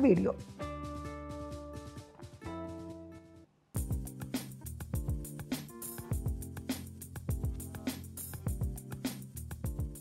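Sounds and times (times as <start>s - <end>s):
jingle music with drum beat: 3.8s - 10.0s.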